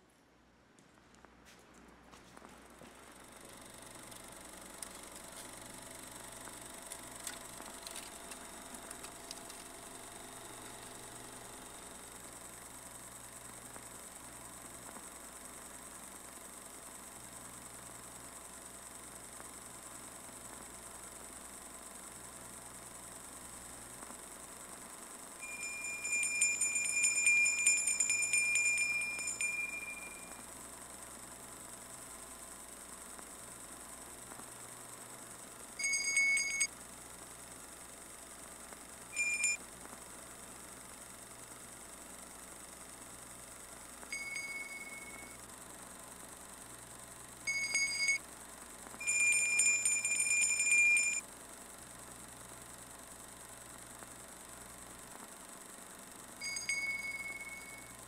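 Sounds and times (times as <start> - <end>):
small handbell ringing rapidly: 25.4 - 30.4, 35.8 - 36.7, 39.2 - 39.6, 44.1 - 45.4, 47.5 - 48.2, 49.0 - 51.2, 56.4 - 58.0.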